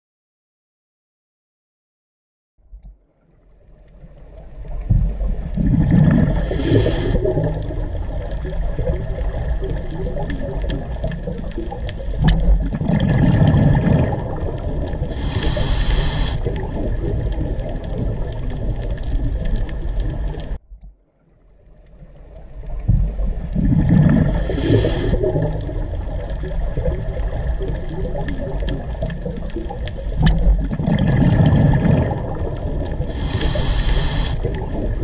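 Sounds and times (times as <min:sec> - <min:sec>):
rushing water-like noise: 0:04.7 - 0:20.6, 0:23.0 - 0:35.0
brief high hiss: 0:15.1 - 0:16.4, 0:33.2 - 0:34.4.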